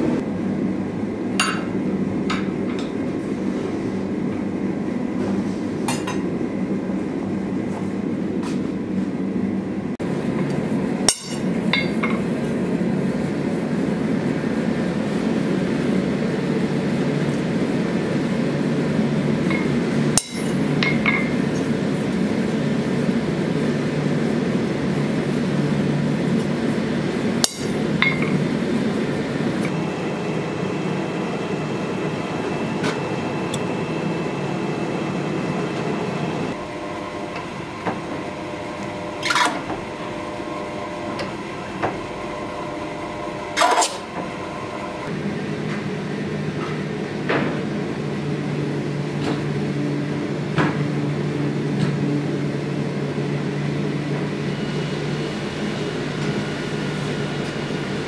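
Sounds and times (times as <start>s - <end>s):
steel striking steel: 11.1s - 12.1s, 20.2s - 21.3s, 27.4s - 28.3s.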